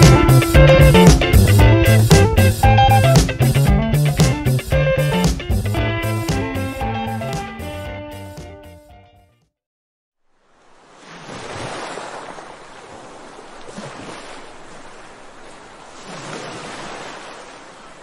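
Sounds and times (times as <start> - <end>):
ocean waves breaking: 10.4 - 18.0.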